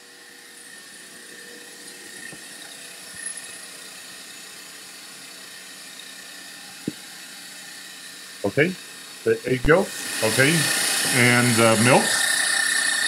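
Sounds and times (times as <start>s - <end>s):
stand mixer running: 8.0s - 13.0s.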